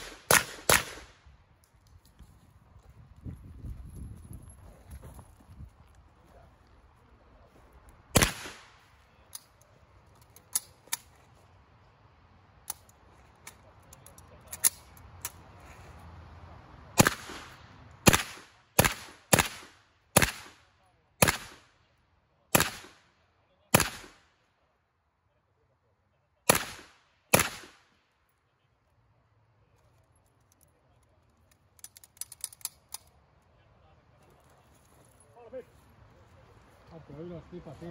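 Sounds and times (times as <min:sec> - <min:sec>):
gunshots: 0:00.0 - 0:01.2, 0:08.1 - 0:08.8, 0:17.0 - 0:20.6, 0:21.2 - 0:21.7, 0:22.5 - 0:23.0, 0:23.7 - 0:24.2, 0:26.5 - 0:27.8.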